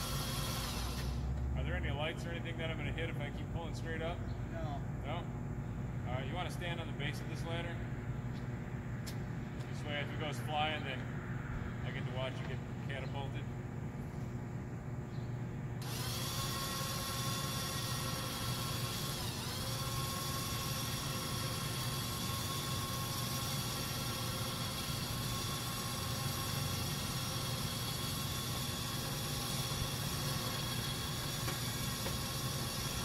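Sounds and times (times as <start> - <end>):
electric winch motor whirring: 0.0 - 1.5, 15.8 - 33.0.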